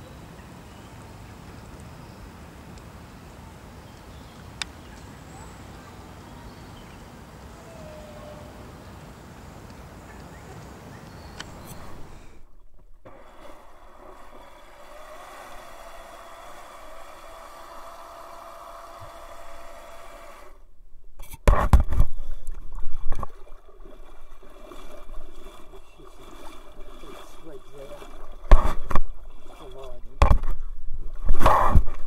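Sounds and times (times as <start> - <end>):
jet drive whine: 11.4 - 20.7
water churning: 11.4 - 32.0.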